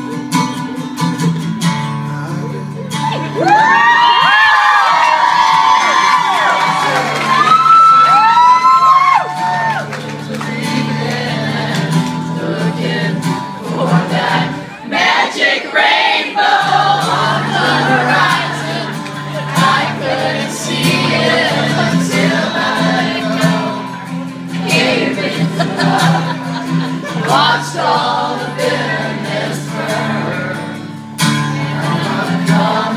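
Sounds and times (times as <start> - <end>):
acoustic guitar strumming: 0.0 - 3.4, 8.4 - 32.9
crowd voices: 0.0 - 32.9
person singing: 16.3 - 32.9.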